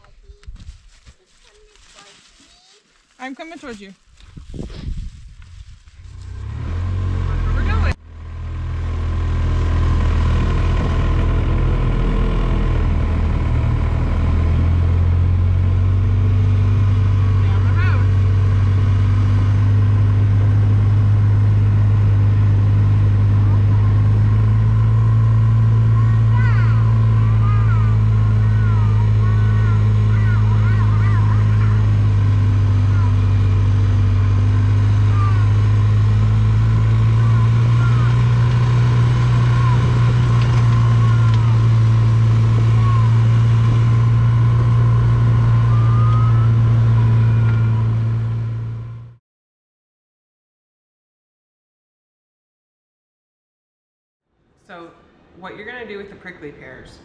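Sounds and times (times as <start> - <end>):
vehicle engine running: 4.4 - 49.2.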